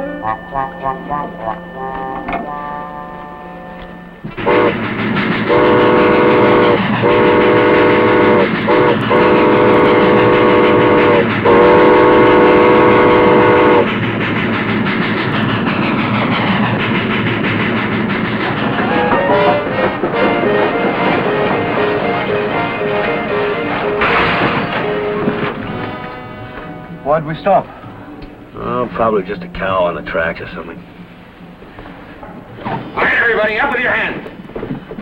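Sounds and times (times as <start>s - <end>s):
steam locomotive whistle blasts: 0.0s - 13.9s, 18.8s - 27.0s
train rattling: 0.0s - 35.0s.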